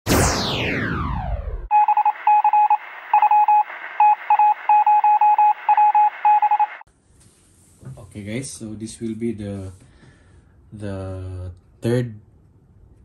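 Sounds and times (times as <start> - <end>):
electronic falling sweep: 0.1 - 6.8
morse code beeps: 1.7 - 6.8.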